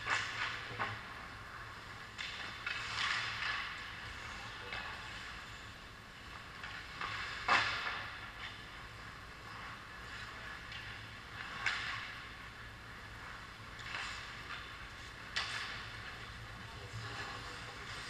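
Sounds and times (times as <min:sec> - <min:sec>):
low rink hum: 0:00.0 - 0:18.0
skates scraping on ice: 0:06.3 - 0:18.0.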